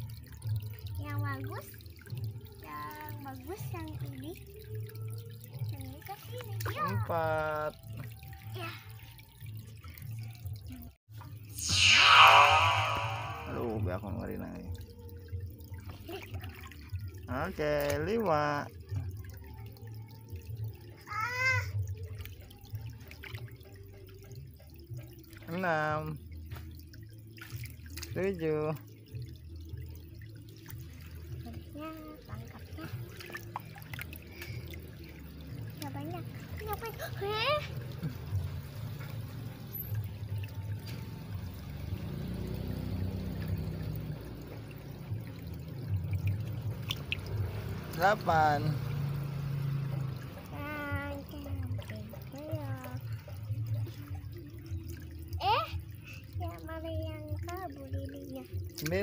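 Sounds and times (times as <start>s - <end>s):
water dripping: 0.0s - 59.0s
low rumble: 11.6s - 13.9s
short high-pitched call: 11.6s - 13.9s.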